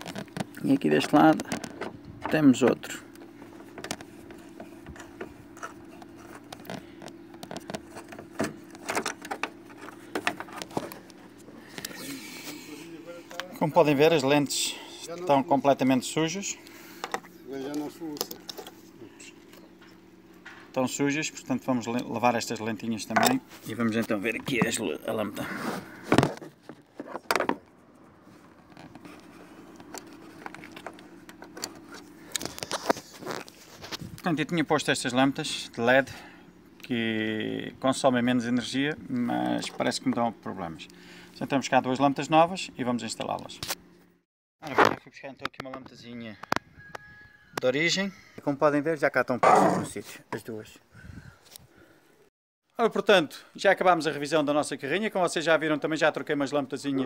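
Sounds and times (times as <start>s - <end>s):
steady low hum: 0.0s - 44.2s.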